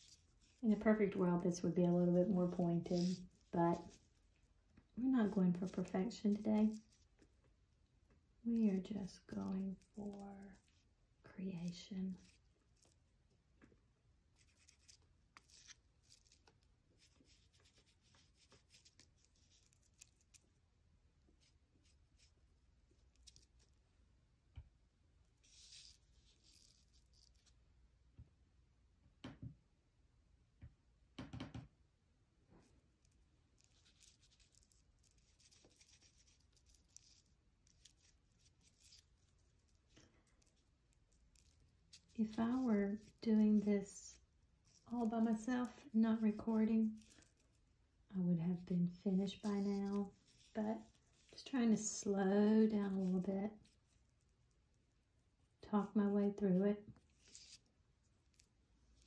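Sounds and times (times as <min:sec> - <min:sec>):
oil pastel scratching on paper: 0:00.0 - 0:07.4, 0:08.5 - 0:13.1, 0:14.3 - 0:20.6, 0:21.3 - 0:23.8, 0:25.2 - 0:27.6, 0:32.6 - 0:47.7, 0:48.5 - 0:54.7, 0:56.9 - 0:59.0.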